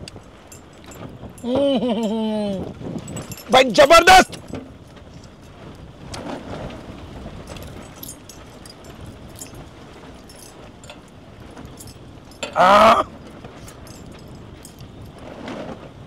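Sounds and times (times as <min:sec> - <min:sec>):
steady low hiss: 0:00.0 - 0:16.0
man exclaiming: 0:01.4 - 0:02.7, 0:03.5 - 0:04.3, 0:12.6 - 0:13.1
metal jewellery clinking on platter: 0:03.0 - 0:04.6, 0:07.5 - 0:12.7.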